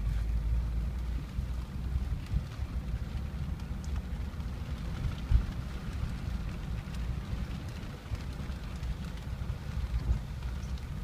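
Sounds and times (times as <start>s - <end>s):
raindrops ticking on windshield: 0.0s - 11.0s
vehicle interior low rumble: 0.0s - 11.0s.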